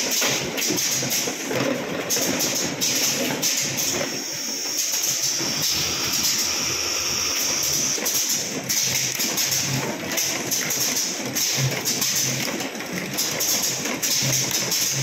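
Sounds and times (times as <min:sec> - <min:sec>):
bottling machine hissing: 0:02.8 - 0:08.6.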